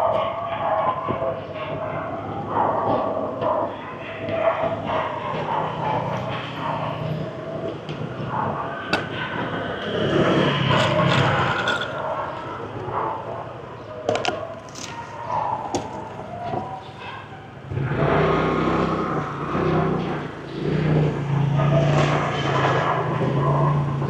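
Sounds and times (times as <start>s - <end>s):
street traffic engines passing: 0.0s - 24.0s
sharp clicks and knocks: 7.6s - 9.9s, 14.0s - 16.7s.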